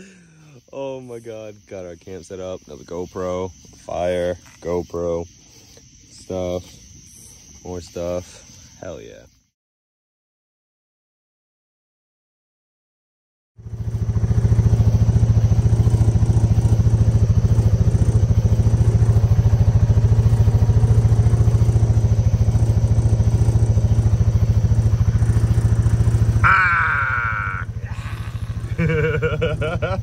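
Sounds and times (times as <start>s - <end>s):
utility vehicle engine running: 13.6s - 30.0s.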